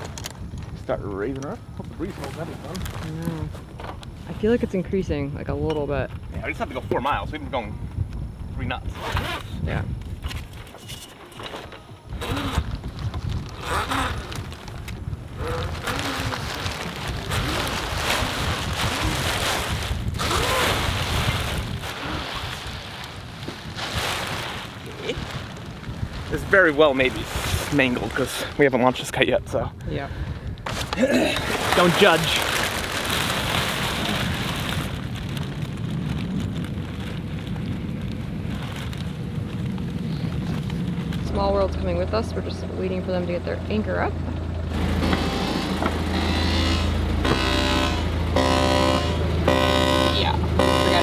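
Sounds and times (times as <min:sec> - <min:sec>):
wind buffeting microphone: 0:00.0 - 0:10.7, 0:11.7 - 0:46.2
sail cloth rustling: 0:08.9 - 0:29.0, 0:30.6 - 0:41.7.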